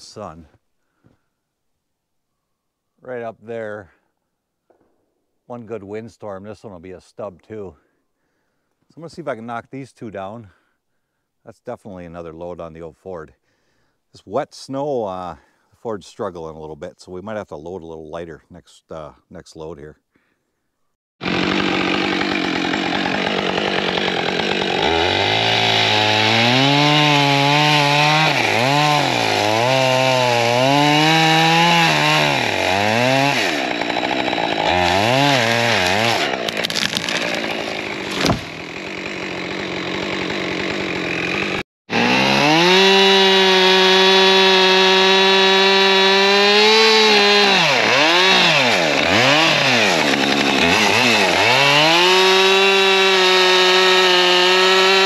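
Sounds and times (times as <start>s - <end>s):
chainsaw cutting tree: 21.2s - 55.0s.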